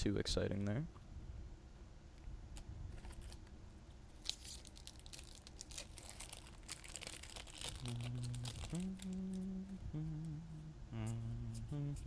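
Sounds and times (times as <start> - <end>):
foil wrapper crinkling: 2.9 - 3.5, 4.1 - 9.5.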